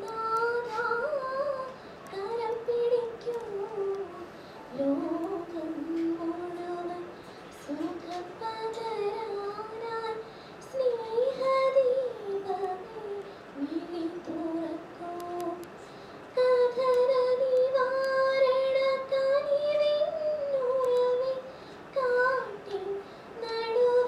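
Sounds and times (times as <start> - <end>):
woman singing slowly: 0.0 - 15.7.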